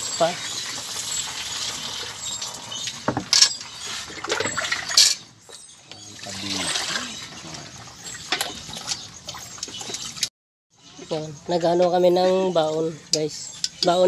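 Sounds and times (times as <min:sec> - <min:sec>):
metal pots clinking: 0:00.0 - 0:09.0
water pouring and splashing: 0:00.0 - 0:10.3.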